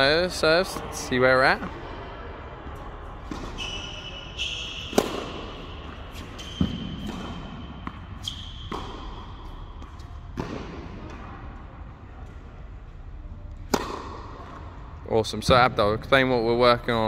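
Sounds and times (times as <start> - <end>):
tennis ball bouncing on hard court: 4.4 - 11.2, 13.7 - 14.7.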